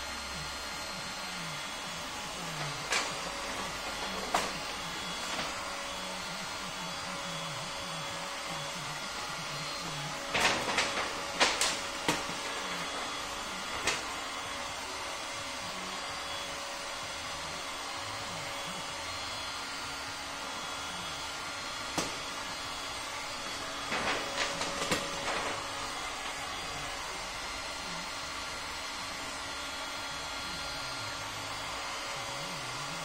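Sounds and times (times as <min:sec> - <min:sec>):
heat gun blowing: 0:18.6 - 0:29.6.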